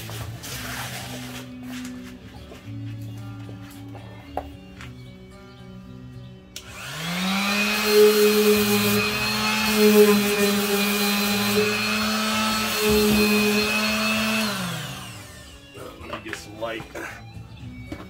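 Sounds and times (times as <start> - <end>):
electric sander whining: 5.6 - 15.8.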